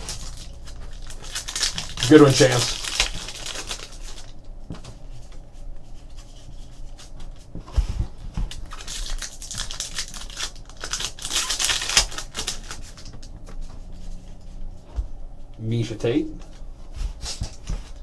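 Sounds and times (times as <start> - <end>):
cards rustling: 0.0 - 4.4, 8.4 - 13.9
foil wrapper crinkling and tearing: 0.0 - 4.4, 8.4 - 13.3.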